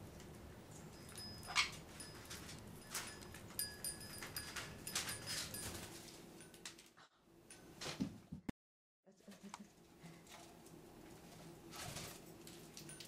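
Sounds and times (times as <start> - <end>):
parrots chirping and clicking: 0.1 - 6.9, 11.8 - 13.0.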